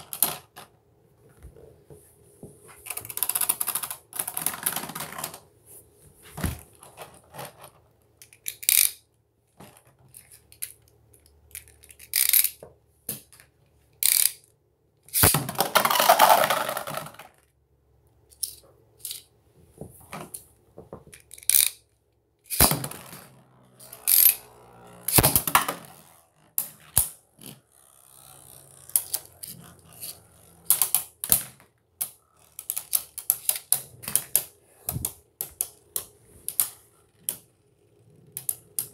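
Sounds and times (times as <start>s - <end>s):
spinning tops clacking and rattling: 22.5s - 34.4s.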